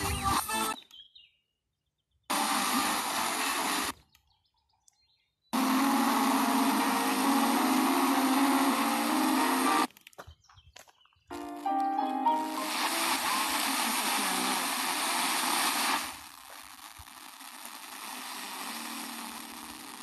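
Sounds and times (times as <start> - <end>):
radio static hiss: 2.3 - 4.0, 5.6 - 9.9, 11.4 - 20.0.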